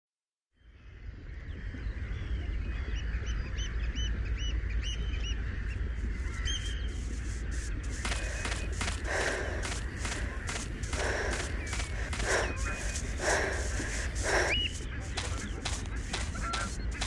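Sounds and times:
steady low rumble: 1.1s - 17.0s
bird calls: 1.5s - 17.0s
running footsteps: 6.9s - 17.0s.

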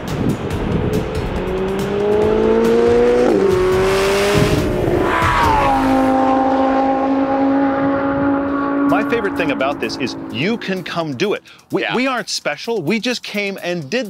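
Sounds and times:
car engine accelerating: 0.0s - 11.2s.

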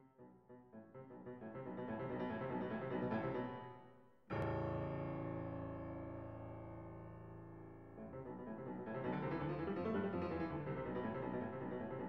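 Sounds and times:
piano music: 4.4s - 12.0s.

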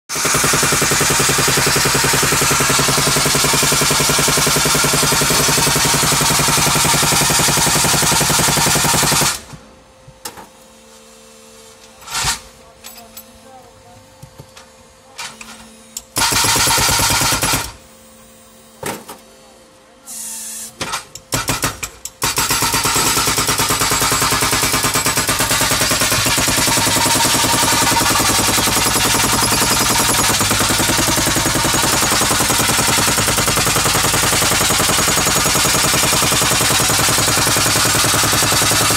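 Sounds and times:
hydraulic breaker hammering concrete: 0.1s - 9.5s, 16.1s - 17.8s, 20.8s - 38.9s.

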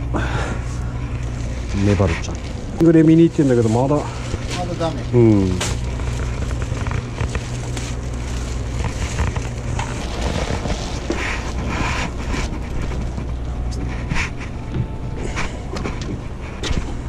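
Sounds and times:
steady low hum: 0.0s - 17.0s
plastic bag crinkling: 1.1s - 13.5s.

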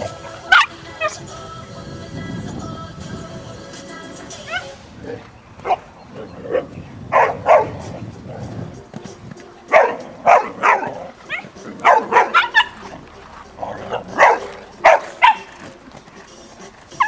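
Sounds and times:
dog barking: 0.4s - 1.2s, 5.6s - 7.8s, 9.7s - 12.9s, 13.9s - 15.6s.

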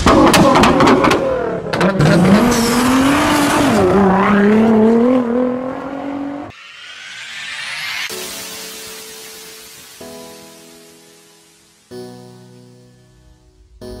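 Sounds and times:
car engine revving high: 0.8s - 8.1s
rising whoosh: 2.2s - 10.6s.

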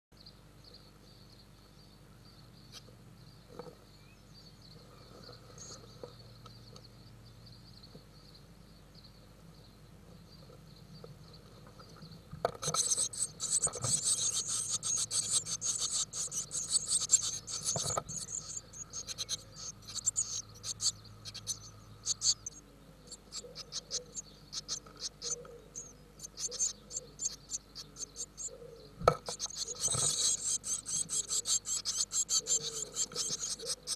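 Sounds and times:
faint steady hum: 0.1s - 33.9s
nestlings begging calls: 11.7s - 33.9s.

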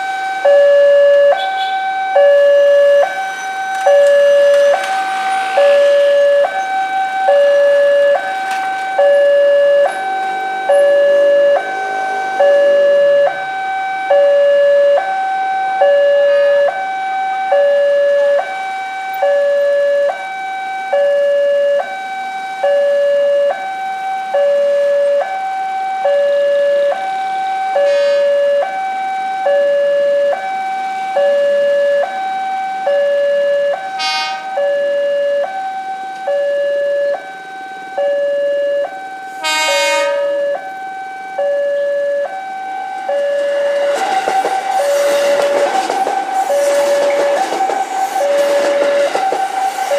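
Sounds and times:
level crossing alarm two tones: 0.0s - 49.9s
horn blast: 3.0s - 15.2s, 27.8s - 28.6s, 34.0s - 34.6s, 39.4s - 40.6s, 43.1s - 49.9s.

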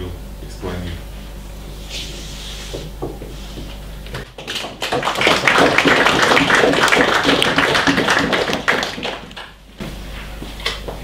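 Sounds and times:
small audience applauding: 4.2s - 9.6s.

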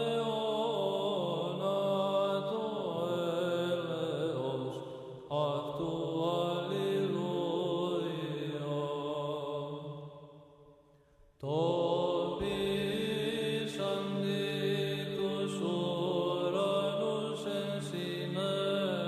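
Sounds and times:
chanted voices: 11.4s - 19.0s.

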